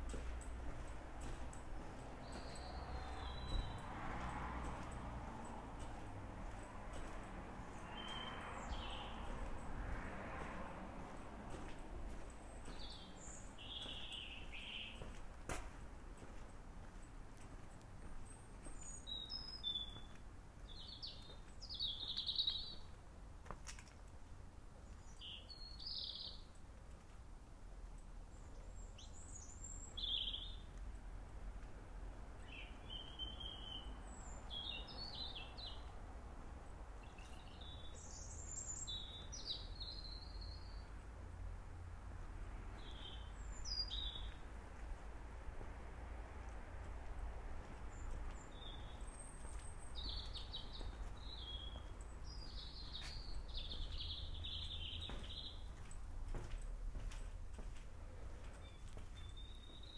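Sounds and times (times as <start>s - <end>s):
songbird singing: 0.0s - 9.8s, 11.1s - 15.4s, 16.9s - 23.1s, 24.8s - 26.8s, 27.9s - 31.2s, 32.3s - 41.5s, 42.6s - 44.9s, 47.6s - 56.1s, 58.0s - 59.9s.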